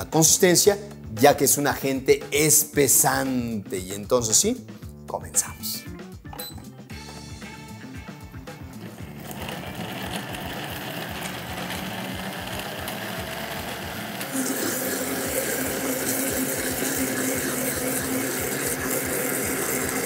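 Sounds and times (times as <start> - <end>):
blender motor running: 8.9 - 20.0.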